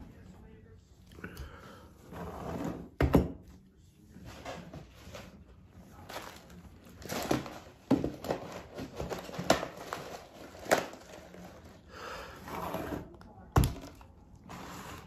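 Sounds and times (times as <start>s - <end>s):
cardboard packaging rustling: 4.2s - 12.4s.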